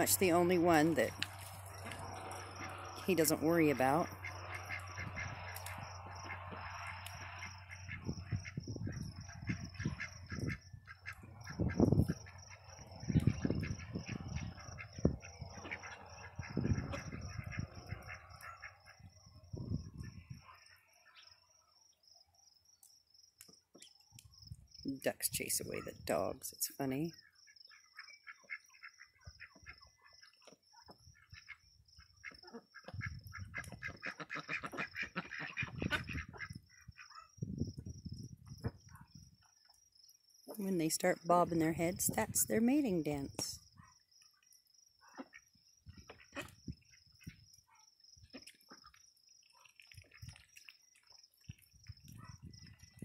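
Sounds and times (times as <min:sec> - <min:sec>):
ducks quacking: 0:00.0 - 0:19.1, 0:31.1 - 0:37.3
crickets chirping: 0:00.1 - 0:53.0.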